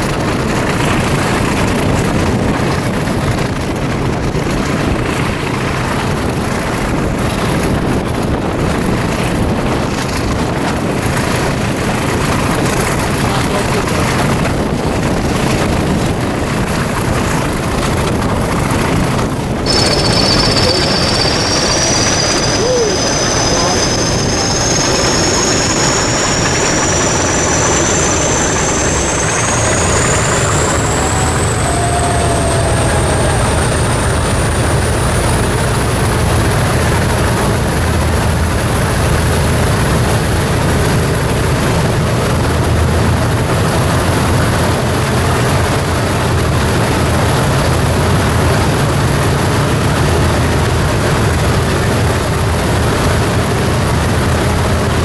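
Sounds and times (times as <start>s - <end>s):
diesel locomotive rumble: 0.0s - 55.0s
high whine rising in pitch: 19.7s - 37.0s.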